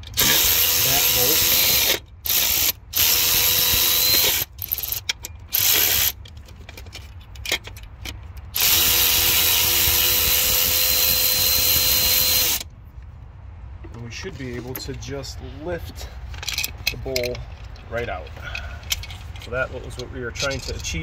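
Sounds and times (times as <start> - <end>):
power ratchet whining: 0.0 - 6.2, 8.5 - 12.7
ratchet clicks: 0.1 - 12.7.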